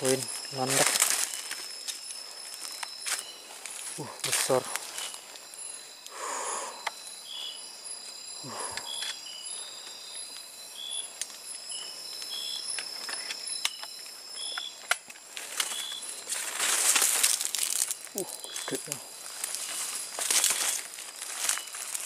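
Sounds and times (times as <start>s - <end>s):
cricket chirps: 0.0s - 22.0s
steady high insect tones: 0.0s - 22.0s
rustling: 15.2s - 22.0s.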